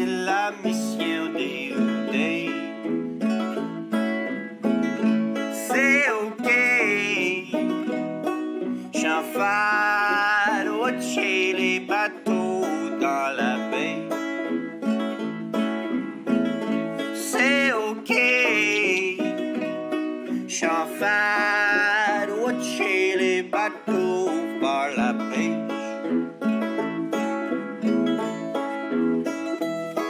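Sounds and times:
man singing: 0:00.0 - 0:03.6, 0:05.4 - 0:08.1, 0:08.7 - 0:14.7, 0:17.0 - 0:26.2
acoustic guitar: 0:00.0 - 0:30.0
banjo: 0:00.0 - 0:30.0.

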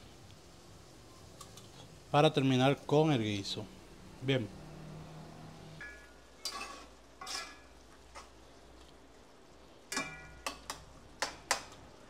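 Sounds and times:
faint sizzle: 0:00.0 - 0:12.0
utensil clinking and scraping pot: 0:05.8 - 0:08.3, 0:09.9 - 0:11.8.

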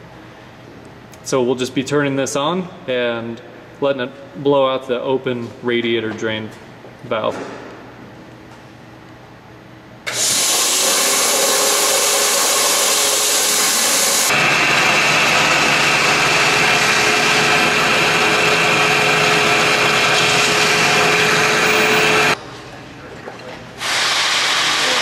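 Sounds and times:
shop-vac blower rushing air: 0:09.2 - 0:22.4, 0:23.7 - 0:25.0.

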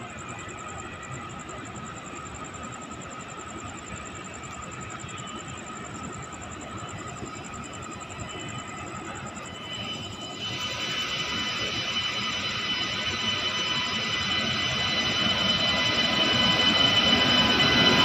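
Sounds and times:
high steady whines: 0:00.0 - 0:18.0
electric locomotive rumble: 0:07.3 - 0:18.0.

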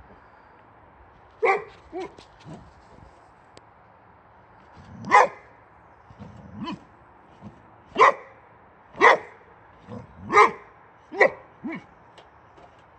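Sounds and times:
dog barking: 0:01.4 - 0:02.2, 0:05.1 - 0:05.5, 0:08.0 - 0:08.3, 0:09.0 - 0:11.9.

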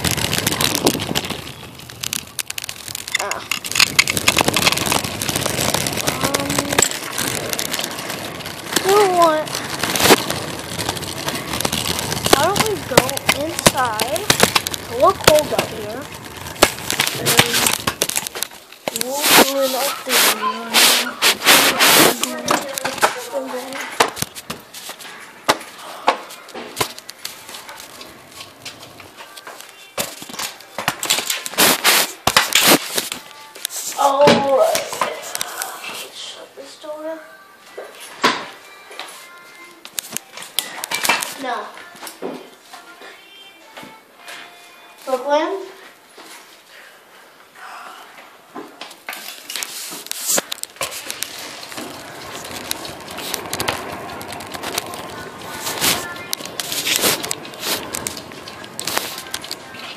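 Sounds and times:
camera rubbing and rustling: 0:00.0 - 0:25.1, 0:31.0 - 0:34.0, 0:49.2 - 0:59.9
sharp clicks and crackles: 0:00.0 - 0:35.8, 0:39.3 - 0:42.2, 0:48.8 - 0:59.9.

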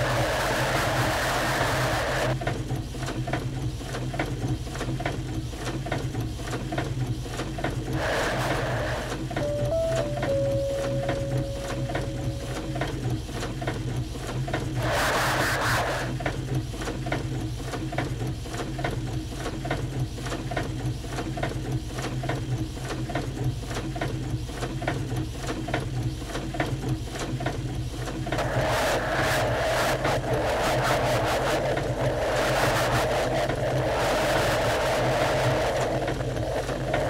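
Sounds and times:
held tone: 0:09.4 - 0:13.3
steady low hum: 0:09.4 - 0:13.5.

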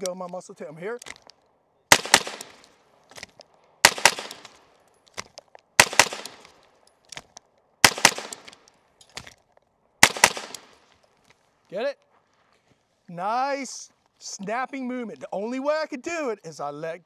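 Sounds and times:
gunshot echo: 0:01.9 - 0:02.7, 0:03.8 - 0:04.6, 0:05.8 - 0:06.5, 0:07.8 - 0:08.6, 0:10.0 - 0:10.8
rifle gunshots: 0:01.9 - 0:02.7, 0:03.8 - 0:04.6, 0:05.8 - 0:06.5, 0:07.8 - 0:08.6, 0:10.0 - 0:10.8.

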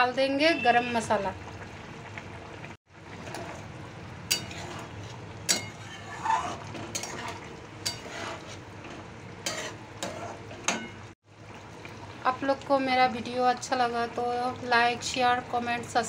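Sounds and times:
curry simmering and sizzling: 0:00.0 - 0:16.0
metal spatula clinking pan: 0:04.3 - 0:04.6, 0:05.5 - 0:05.9, 0:07.8 - 0:08.1.

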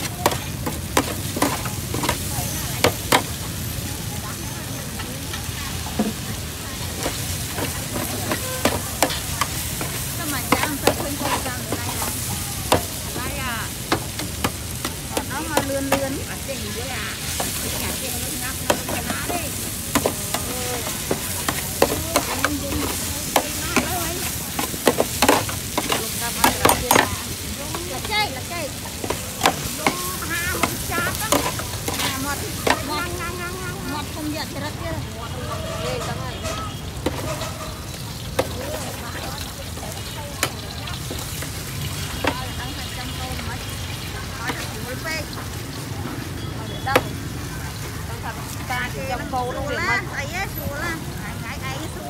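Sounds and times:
food sizzling in a pan: 0:00.0 - 0:52.0
utensil clicking against pan: 0:17.3 - 0:28.2.

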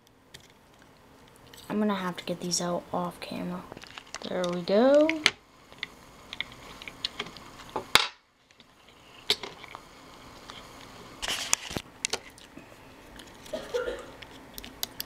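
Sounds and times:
batteries rattling and scraping: 0:03.7 - 0:05.2.

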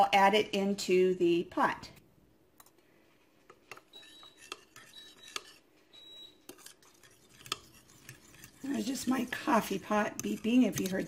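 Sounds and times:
coffee maker beeps: 0:03.9 - 0:05.3, 0:05.9 - 0:06.4.

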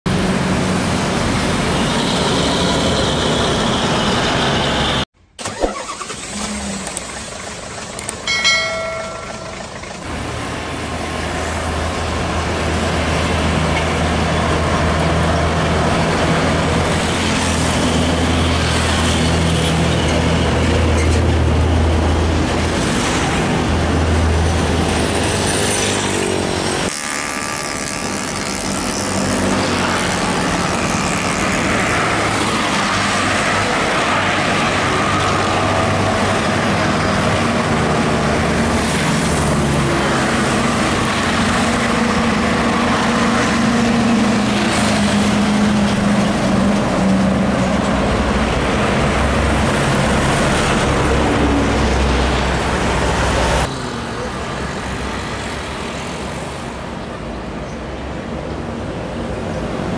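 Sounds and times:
heavy trucks passing: 0:00.1 - 0:59.9
short high-pitched tone: 0:08.3 - 0:10.0.

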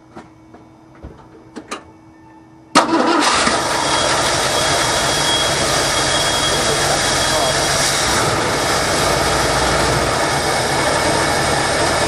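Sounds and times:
truck engine starting and running: 0:02.7 - 0:12.0.

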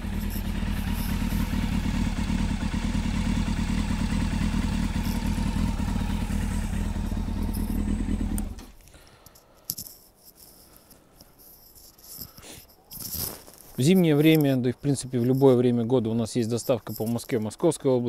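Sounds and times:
motorcycle engine idling: 0:00.0 - 0:08.8.

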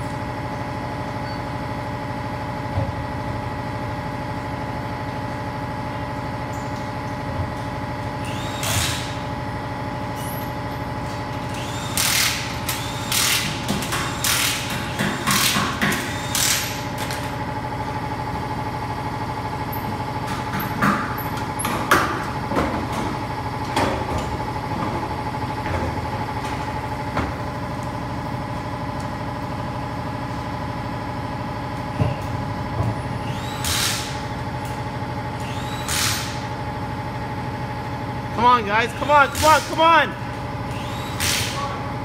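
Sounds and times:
steady machine hum: 0:00.0 - 0:42.0
pneumatic wrench blasts: 0:08.2 - 0:09.3, 0:11.4 - 0:17.2, 0:33.2 - 0:34.3, 0:35.4 - 0:36.5, 0:39.1 - 0:39.8, 0:40.7 - 0:41.7.

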